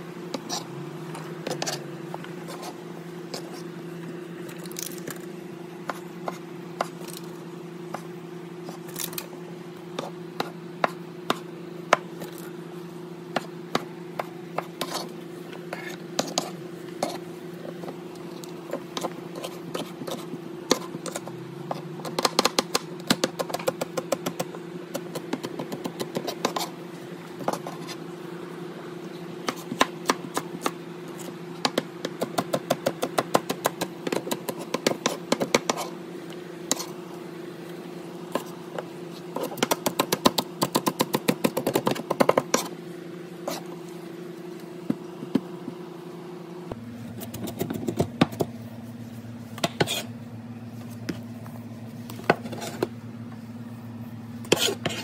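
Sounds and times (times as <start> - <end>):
steady low hum: 0.0 - 55.0
knife chopping on cutting board: 49.6 - 50.1, 54.5 - 55.0.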